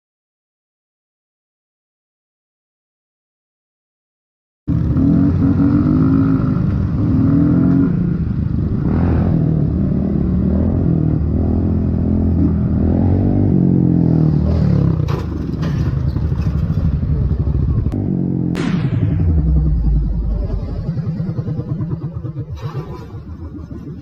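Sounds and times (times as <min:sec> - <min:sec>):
motorcycle engine revving: 0:04.7 - 0:24.0
crash clatter and knocks: 0:15.0 - 0:16.9
hard impact: 0:18.6 - 0:22.9.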